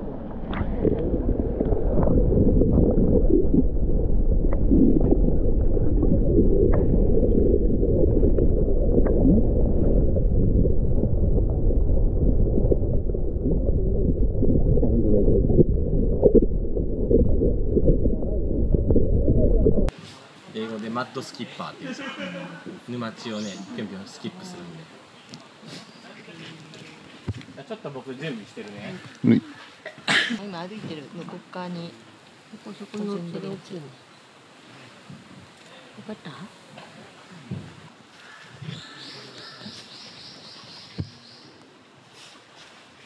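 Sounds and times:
water bubbling: 0:00.0 - 0:19.9
underwater rush of water: 0:00.0 - 0:20.7.

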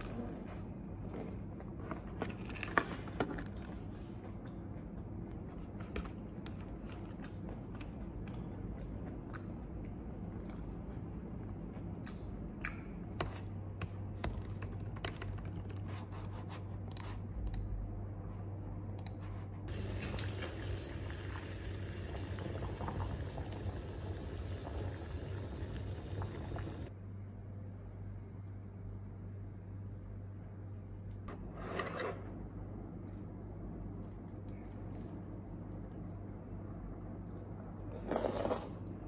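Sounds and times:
water boiling in a pot: 0:19.7 - 0:26.9.

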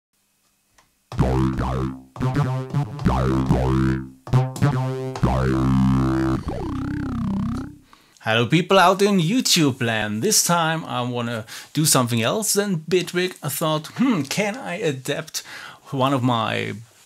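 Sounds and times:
synthesizer chords with pitch sweeps: 0:01.1 - 0:07.8.

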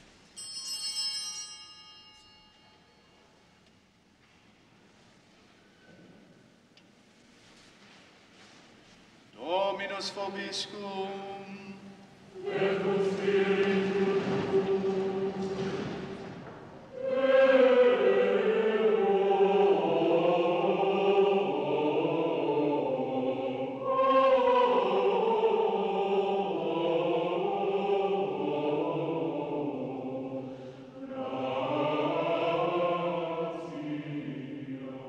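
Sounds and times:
choir singing a slow chant: 0:09.4 - 0:35.0.

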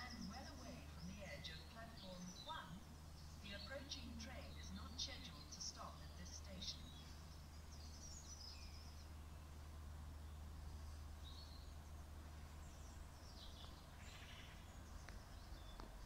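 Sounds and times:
faint bird chirps: 0:00.0 - 0:09.6, 0:10.2 - 0:16.0
low background hum: 0:00.0 - 0:16.0.

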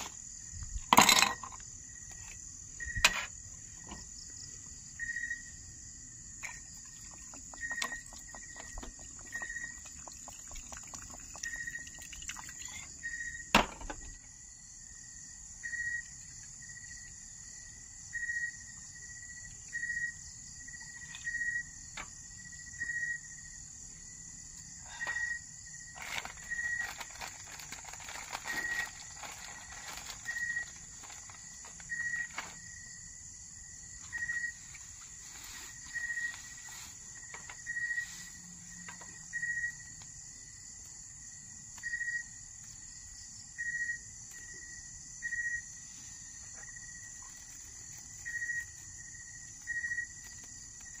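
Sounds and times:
high insect chorus: 0:00.0 - 0:51.0.

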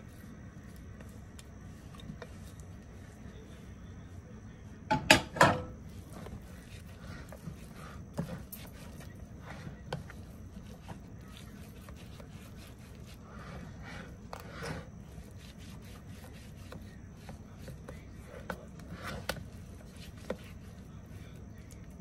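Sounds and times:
spatula scraping in metal pan: 0:13.2 - 0:15.2.

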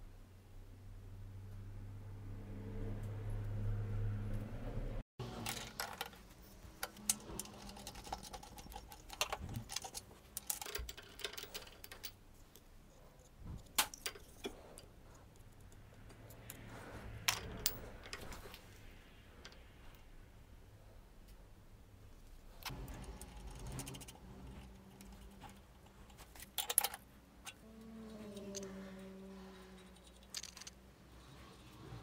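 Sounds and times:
low steady hum: 0:00.0 - 0:32.0
metallic clicks and clinks: 0:05.3 - 0:12.6, 0:22.6 - 0:27.6, 0:29.8 - 0:30.8.

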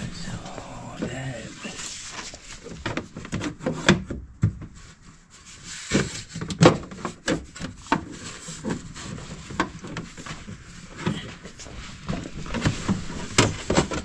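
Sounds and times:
plastic shield knocking and rubbing: 0:12.0 - 0:14.0.

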